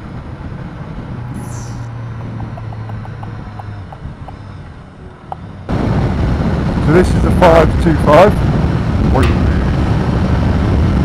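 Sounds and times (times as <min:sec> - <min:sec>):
motorcycle engine cruising: 0:00.0 - 0:11.0
wind noise on microphone: 0:05.3 - 0:11.0.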